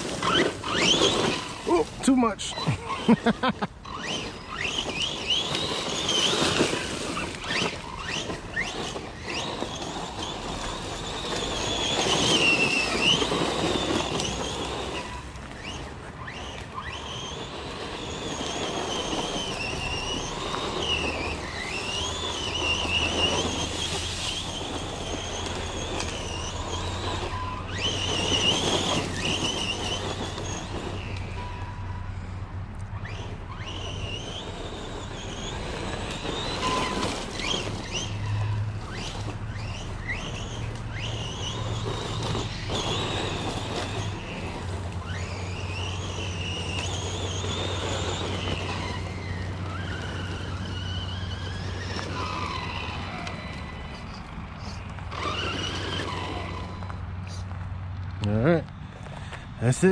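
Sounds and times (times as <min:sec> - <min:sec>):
electric motor whining: 0:00.0 - 0:59.9
toy truck driving: 0:00.0 - 0:59.9.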